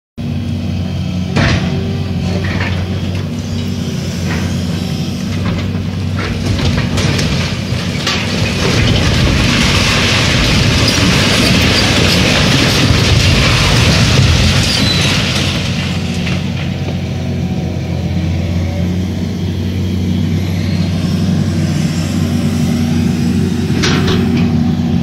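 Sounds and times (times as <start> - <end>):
excavator diesel engine running: 0.2 - 25.0
concrete cracking and crashing: 1.4 - 17.1
rubble pouring down: 6.3 - 16.6.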